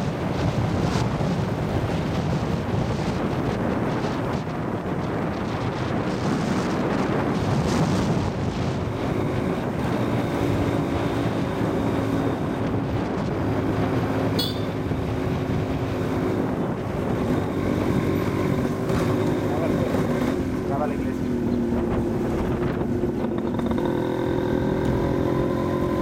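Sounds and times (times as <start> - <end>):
wind buffeting microphone: 0.0 - 26.0
motorcycle engine running: 8.2 - 26.0
brief sharp high sound: 14.4 - 14.9.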